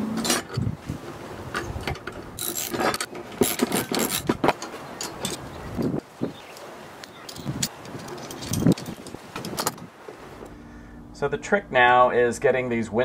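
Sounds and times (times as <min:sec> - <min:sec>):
metal clicks knocks and scrapes: 0:01.5 - 0:06.0, 0:07.1 - 0:10.2.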